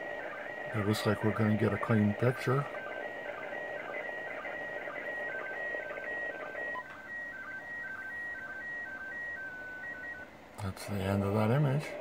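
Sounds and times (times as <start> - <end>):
radio static hiss: 0.0 - 12.0
short alternating radio tones: 0.0 - 12.0.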